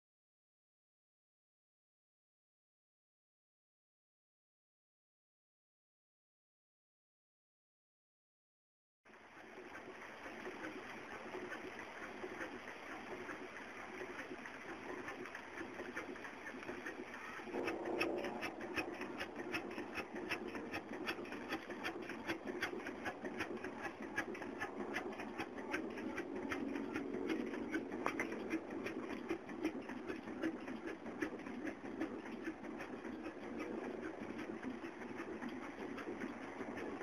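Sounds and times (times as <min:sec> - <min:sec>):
steam engine exhaust beating: 0:09.4 - 0:37.0.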